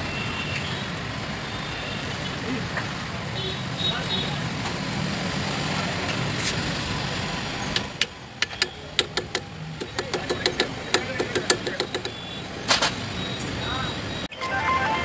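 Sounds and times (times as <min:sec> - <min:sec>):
low rumble of vehicle noise: 0:00.0 - 0:14.3
hammer tapping metal: 0:08.0 - 0:12.2.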